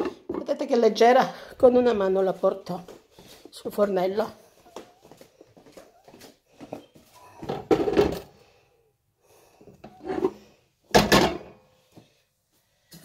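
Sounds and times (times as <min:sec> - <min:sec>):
pot clattering on hob: 0:10.9 - 0:11.5.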